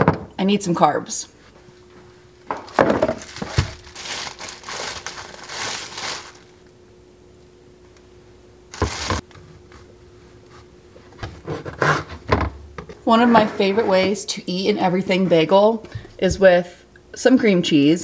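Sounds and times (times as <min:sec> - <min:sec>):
plastic bag crinkling: 0:02.6 - 0:06.7, 0:08.7 - 0:09.2.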